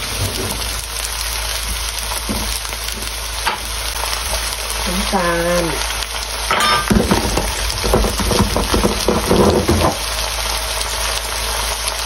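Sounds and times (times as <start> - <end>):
vegetables sizzling in frying pan: 0.0 - 12.0
rattles and knocks of seasoning: 1.7 - 4.4, 6.5 - 10.4.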